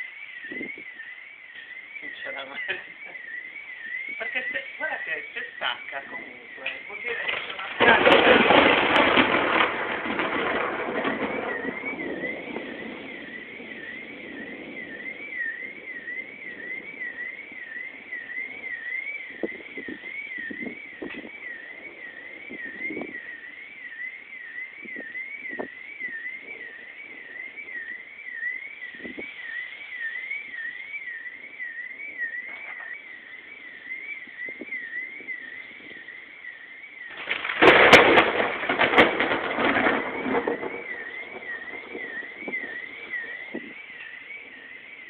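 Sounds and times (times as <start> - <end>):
warbling alarm tone: 0.0 - 45.0
thunder clap: 1.6 - 30.8, 31.4 - 45.0.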